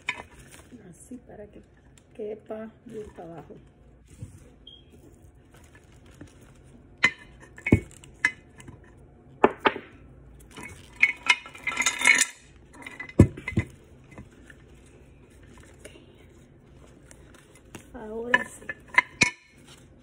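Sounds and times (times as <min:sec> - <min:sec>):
scraping and rustling: 0:02.8 - 0:09.0
glass jar clinking: 0:10.5 - 0:14.3, 0:18.2 - 0:19.8.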